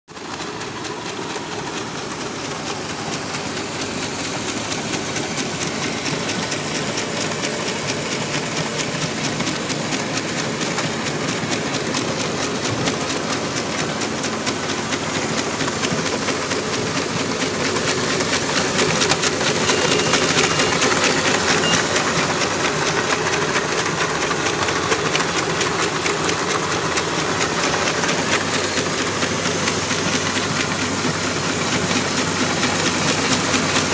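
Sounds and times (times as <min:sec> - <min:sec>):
packing machine clattering: 0:08.9 - 0:31.8.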